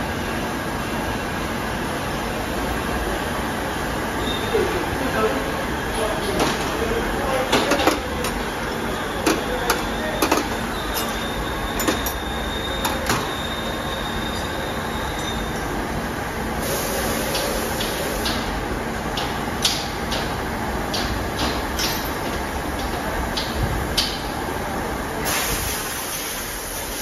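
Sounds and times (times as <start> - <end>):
milling machine running: 5.6 - 19.5
metal tools clinking on steel bench: 9.2 - 13.3, 21.8 - 22.4
hiss: 16.6 - 18.5, 25.2 - 27.0.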